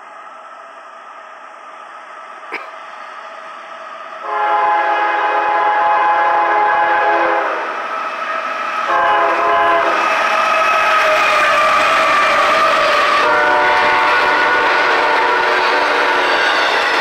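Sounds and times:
locomotive air horn chord: 4.2 - 7.7, 8.9 - 10.0, 13.1 - 16.5.

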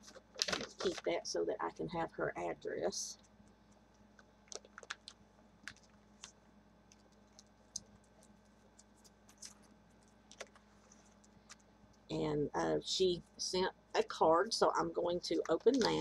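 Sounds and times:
paper rustling: 0.0 - 1.1, 8.4 - 9.7.

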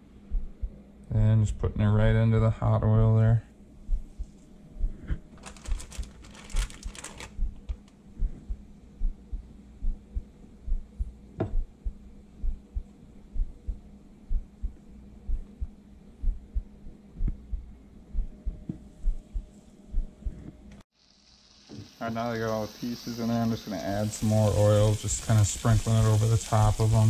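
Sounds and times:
steady low hum: 0.0 - 27.0
dull low thumps: 0.2 - 0.8, 3.8 - 20.7
fish sizzling in hot oil: 21.0 - 27.0.

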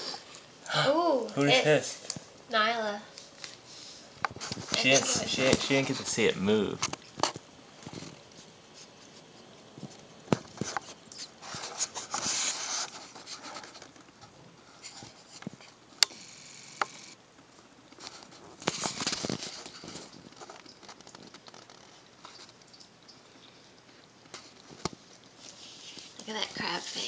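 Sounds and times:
paws and crab legs on tile: 6.9 - 15.8, 18.0 - 27.0.

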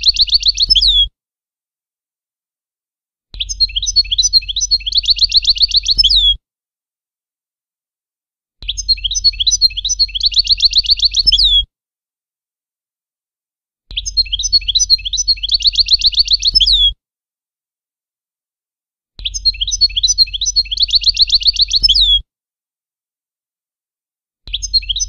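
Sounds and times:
goldfinch song: 0.0 - 1.1, 3.3 - 6.4, 8.6 - 11.7, 13.9 - 17.0, 19.2 - 22.2, 24.5 - 25.0.

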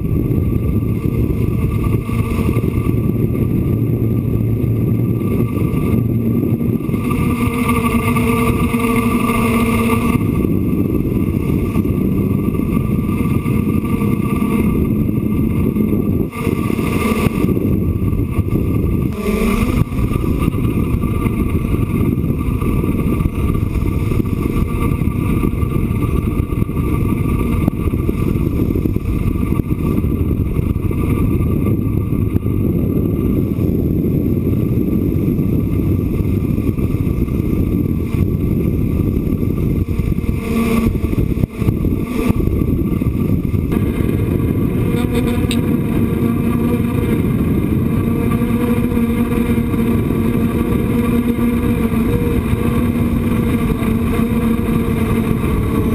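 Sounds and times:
drone motors whining: 0.0 - 55.9
wind rumble on microphone: 0.0 - 55.9.

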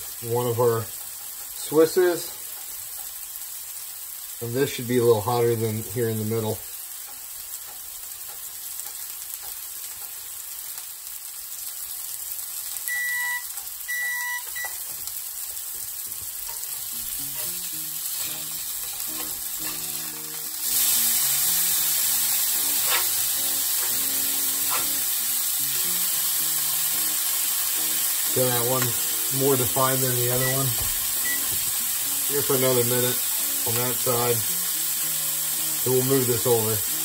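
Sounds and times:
metal spatula flipping patties: 0.0 - 3.3, 6.3 - 10.4, 14.8 - 34.4
burger patties sizzling on griddle: 0.0 - 37.0
short electronic beeps: 12.9 - 14.8, 30.4 - 31.6.

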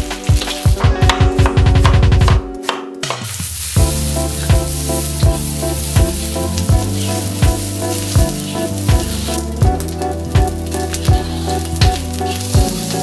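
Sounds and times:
background music with steady beat: 0.0 - 13.0
food sizzling in hot oil: 3.2 - 13.0
spatula stirring in wok: 3.6 - 13.0.

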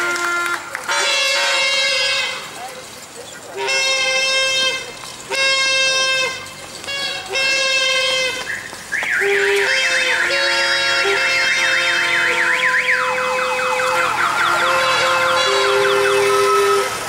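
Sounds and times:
electronic siren yelping: 11.4 - 17.0.

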